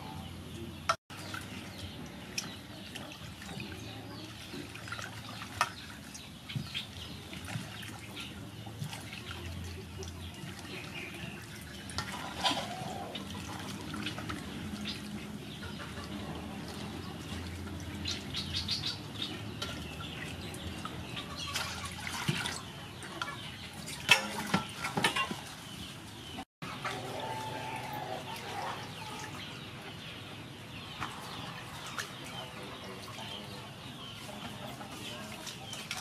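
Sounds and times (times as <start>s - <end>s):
water splashing in metal basin: 1.1s - 25.7s, 31.0s - 33.4s, 34.2s - 36.0s.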